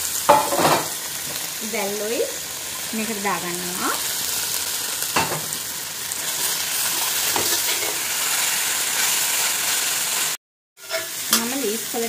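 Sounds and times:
seafood sizzling in a pot: 0.0 - 12.0
stirring scrapes against pot: 6.3 - 8.0.

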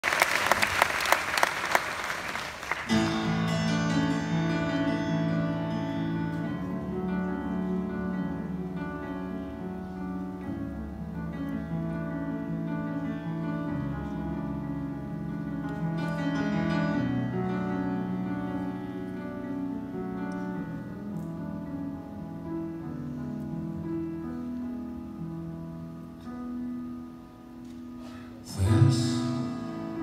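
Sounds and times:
audience applause: 0.0 - 3.0
slow band instrumental with piano: 2.8 - 30.0.

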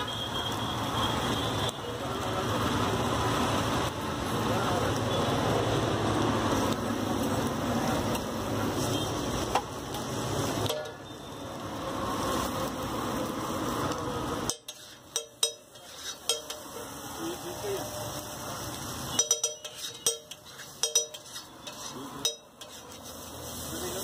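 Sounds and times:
egg sizzling on griddle: 0.0 - 24.0
street traffic: 0.0 - 24.0
metal spatula scraping griddle: 14.3 - 17.0, 19.1 - 24.0.

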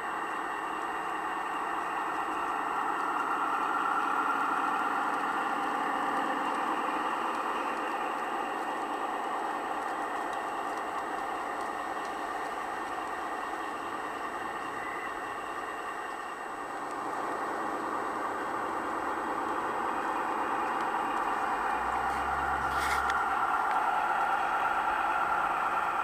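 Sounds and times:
model train rolling on metal track: 0.0 - 26.0.

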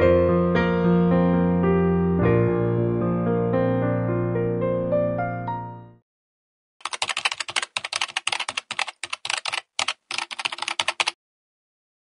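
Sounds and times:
rapid keyboard clicking: 6.8 - 11.2.

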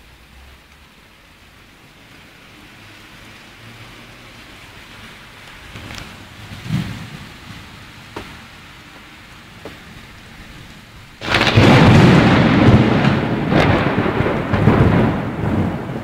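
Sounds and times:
steady rain: 0.0 - 16.0
thunderclap with rolling rumble: 5.5 - 16.0.

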